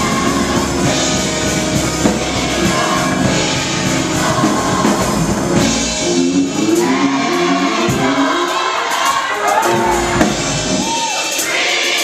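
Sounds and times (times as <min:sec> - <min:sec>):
drum kit beat: 0:00.0 - 0:12.0
gospel choir singing: 0:00.0 - 0:12.0
live band playing: 0:00.0 - 0:12.0.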